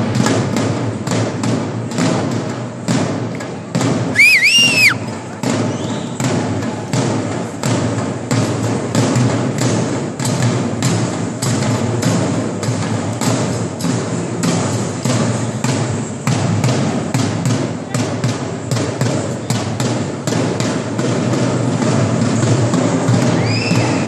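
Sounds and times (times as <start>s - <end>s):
shrill two-note whistle: 4.2s - 5.1s, 23.4s - 24.0s.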